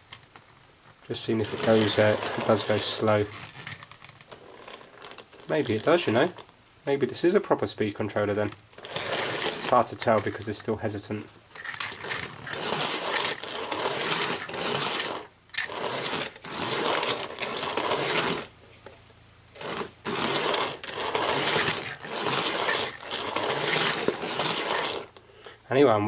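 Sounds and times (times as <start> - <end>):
toy train motor whirring: 1.2 - 6.5, 8.4 - 10.7, 11.5 - 18.5, 19.5 - 25.2.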